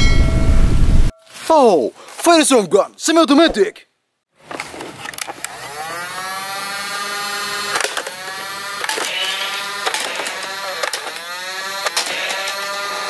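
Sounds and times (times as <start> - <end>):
toy blaster motor whining: 5.4 - 13.0.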